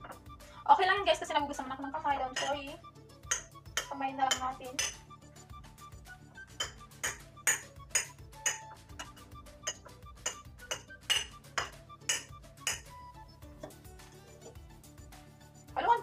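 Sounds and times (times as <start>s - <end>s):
kitchenware clinking: 2.3s - 2.6s, 3.2s - 5.0s, 6.6s - 12.9s.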